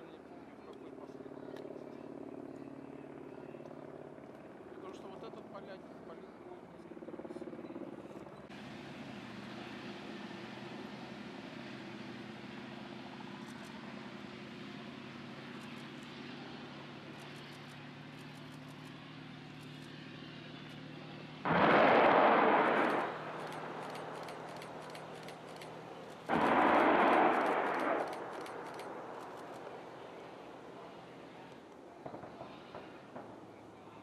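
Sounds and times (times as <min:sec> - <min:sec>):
helicopter drone in flight: 0:00.0 - 0:34.0
rockets firing with rushing roar: 0:21.4 - 0:25.5, 0:26.2 - 0:30.2.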